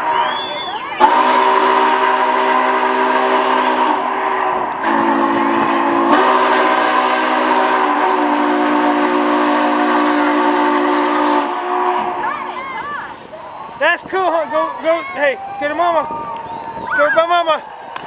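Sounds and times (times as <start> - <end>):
steam locomotive whistle: 0.0 - 13.7.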